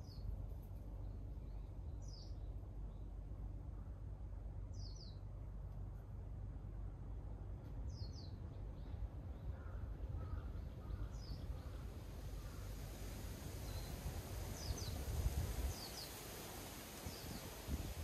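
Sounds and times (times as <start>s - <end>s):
wind through trees: 0.0s - 18.0s
lower bird calls: 7.9s - 12.8s.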